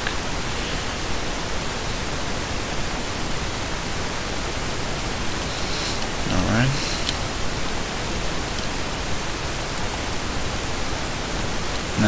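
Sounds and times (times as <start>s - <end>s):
recording hiss: 0.0s - 12.0s.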